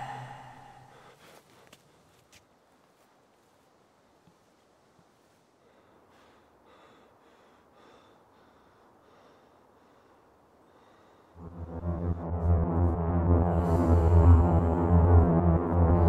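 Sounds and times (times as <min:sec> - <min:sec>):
man breathing quickly: 0:00.0 - 0:02.2, 0:05.4 - 0:11.5.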